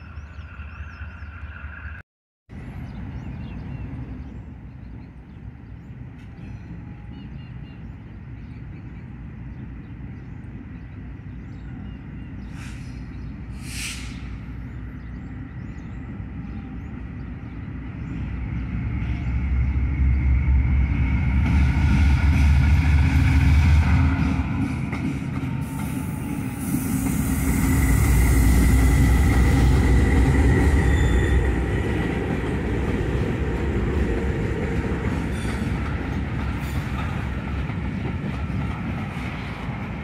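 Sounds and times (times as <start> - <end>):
diesel locomotive engine rumble: 0.0 - 40.0
air hissing: 12.6 - 14.5.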